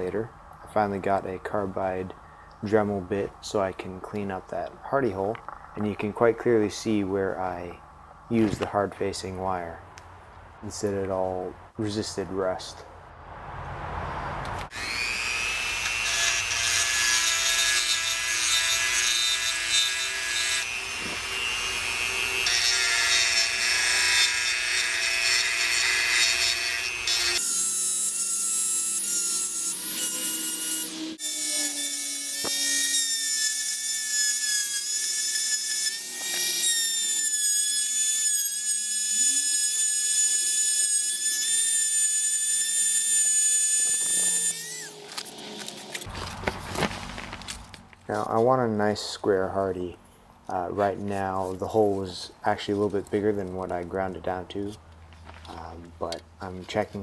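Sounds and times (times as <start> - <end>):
rotary tool grinding metal: 14.7 - 46.1.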